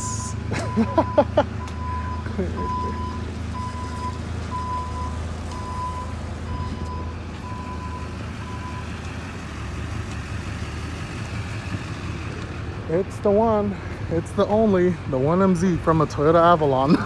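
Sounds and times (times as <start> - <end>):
forklift warning beeper: 0.0 - 8.9
forklift engine running: 0.0 - 17.0.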